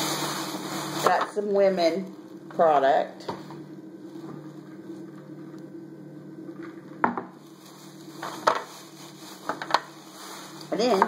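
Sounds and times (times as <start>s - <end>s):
plastic bag rustling: 0.0s - 2.5s, 4.0s - 5.1s, 7.3s - 11.0s
steady low hum: 0.0s - 11.0s
sharp crackle of plastic: 7.4s - 11.0s.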